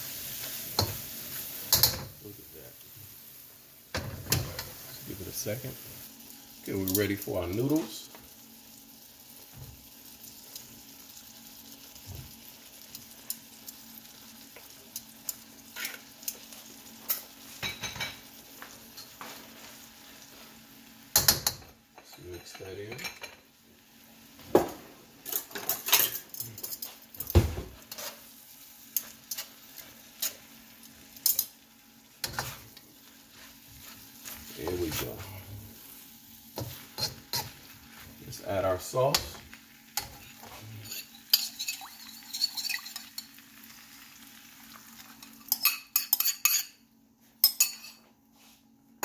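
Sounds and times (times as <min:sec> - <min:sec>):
noodles sizzling in a wok: 0:00.0 - 0:22.0, 0:22.6 - 0:45.7
metal spatula scraping a pan: 0:27.9 - 0:28.3, 0:40.0 - 0:43.1.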